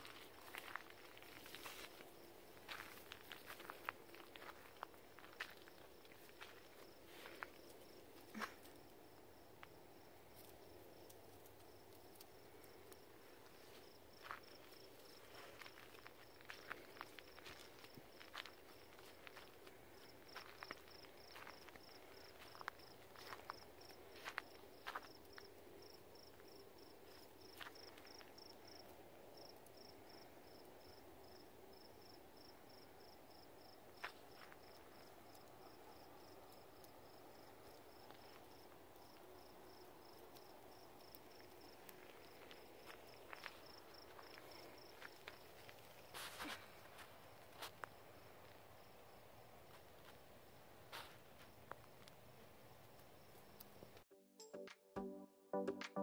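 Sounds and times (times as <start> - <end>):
insect chirping: 9.1 - 51.2, 53.0 - 54.0.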